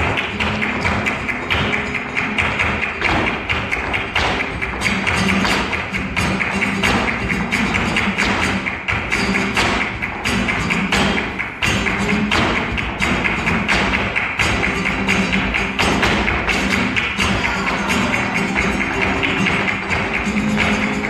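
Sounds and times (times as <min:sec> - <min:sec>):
flamenco guitar playing: 0:00.0 - 0:21.0
hand clapping: 0:00.0 - 0:21.0
heeled shoes stamping and tapping: 0:00.0 - 0:21.0.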